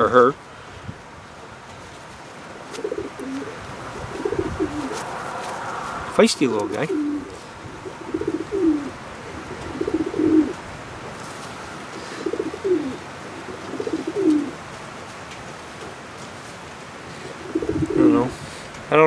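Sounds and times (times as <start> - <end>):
pigeons cooing: 2.5 - 14.8, 16.9 - 18.8.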